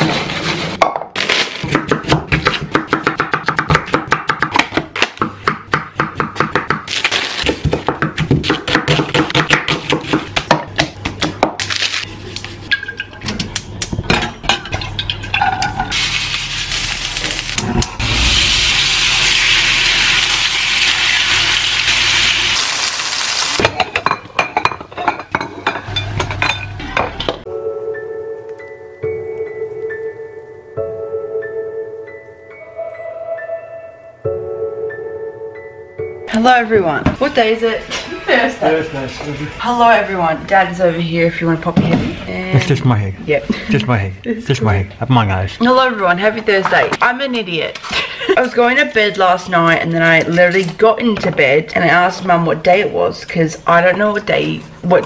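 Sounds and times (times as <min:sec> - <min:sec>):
chicken sizzling in frying pan: 0:15.9 - 0:23.6
music: 0:27.4 - 0:38.9.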